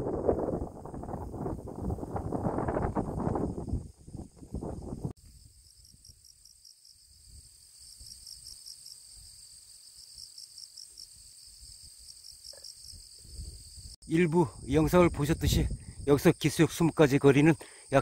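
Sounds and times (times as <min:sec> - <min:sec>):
wind buffeting microphone: 0:00.0 - 0:05.1, 0:13.2 - 0:13.9, 0:14.6 - 0:16.2
insects chirping: 0:00.3 - 0:18.0.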